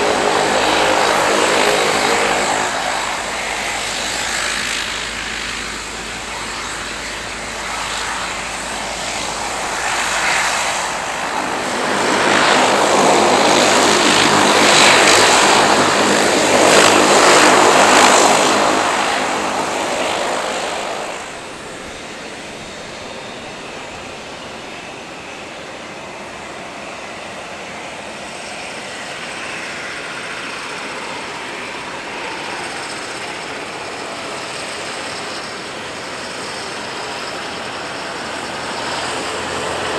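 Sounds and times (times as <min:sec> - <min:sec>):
jet engines humming: 0:00.0 - 0:39.9
turboprop propeller drone: 0:00.0 - 0:39.9.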